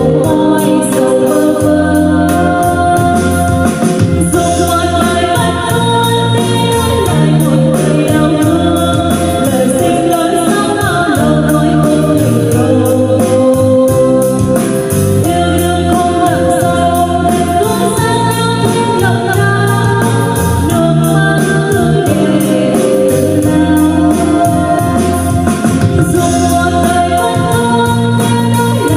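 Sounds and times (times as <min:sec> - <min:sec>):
backing track with bass line: 0:00.0 - 0:28.9
woman singing karaoke: 0:00.0 - 0:28.9.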